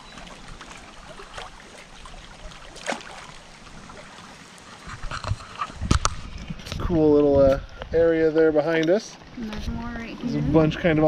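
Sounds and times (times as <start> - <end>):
sharp water splash: 0.0 - 6.4
river current lapping and splashing: 0.0 - 11.0.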